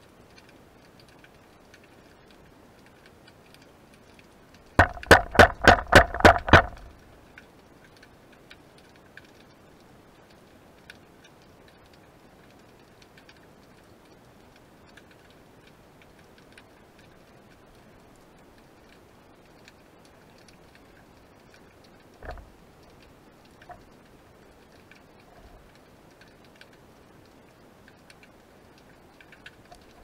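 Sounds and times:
snapping shrimp clicking underwater: 0.2 - 9.6, 18.8 - 30.0.

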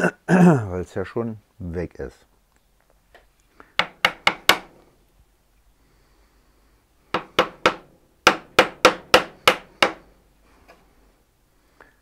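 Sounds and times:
chisel knocking into wood: 3.8 - 4.7, 7.2 - 10.0.

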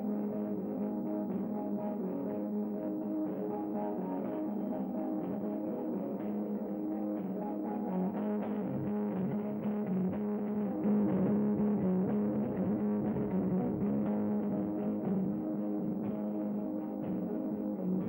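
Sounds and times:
droning electric guitar: 0.0 - 18.0
drums: 8.1 - 18.0.

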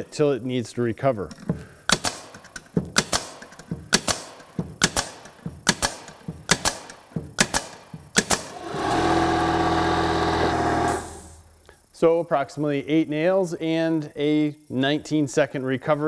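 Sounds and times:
nail gun firing: 1.9 - 11.3
compressor motor humming: 8.4 - 11.5.

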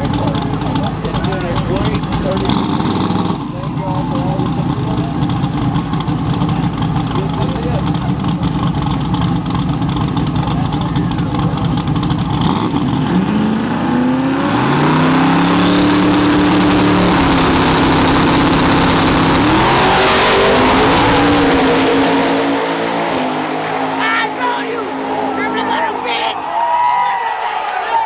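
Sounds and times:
truck engines revving: 0.0 - 26.7.

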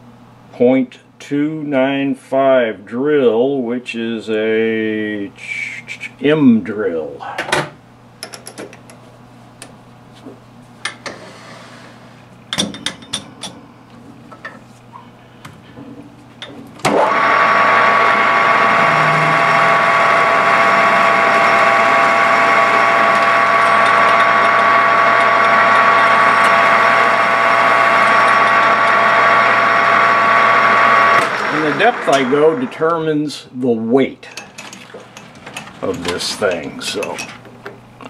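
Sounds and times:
metal lathe whining: 16.8 - 33.0.

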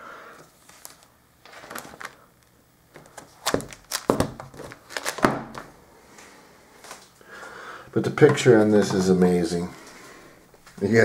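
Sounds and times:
plastic handling noise: 0.4 - 5.8, 8.0 - 10.0.

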